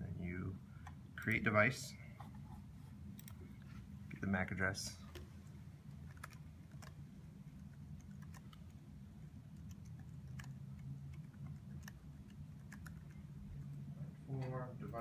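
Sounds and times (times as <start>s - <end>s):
low room hum: 0.0s - 15.0s
laptop keys tapping: 6.0s - 8.8s, 9.5s - 13.8s.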